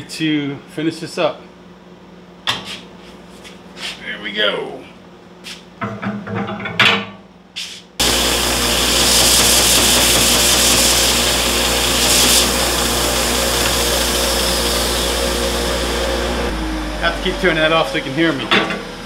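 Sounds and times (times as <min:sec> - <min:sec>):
sander running with low hum: 0:08.0 - 0:19.0.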